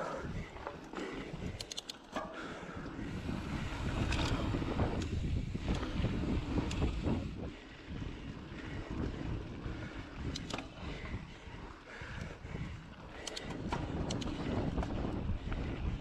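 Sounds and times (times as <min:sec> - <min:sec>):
bike clicks and rattles: 0:00.0 - 0:16.0
wind rushing over microphone: 0:02.7 - 0:16.0.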